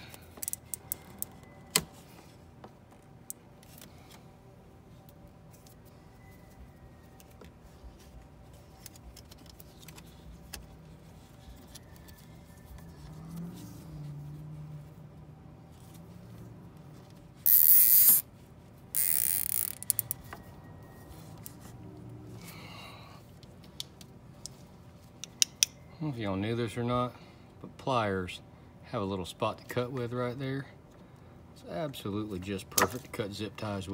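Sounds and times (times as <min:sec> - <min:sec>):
zip ties ratcheting: 0:17.4 - 0:18.2, 0:18.9 - 0:20.2.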